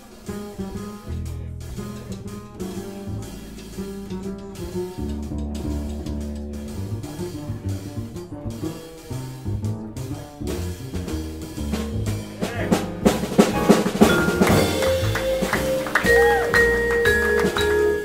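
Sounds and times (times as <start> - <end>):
drum kit: 0.0 - 18.0
piano: 0.0 - 18.0
upright bass walking: 0.0 - 18.0
vibraphone long notes: 13.6 - 18.0.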